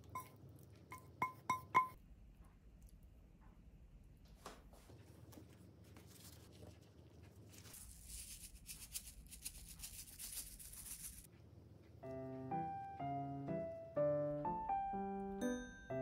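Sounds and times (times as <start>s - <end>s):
piano music: 12.0s - 16.0s.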